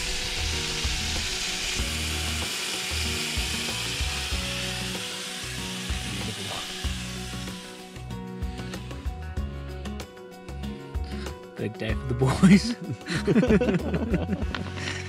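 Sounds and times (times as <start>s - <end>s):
steaks sizzling in a pan: 0.0s - 8.9s.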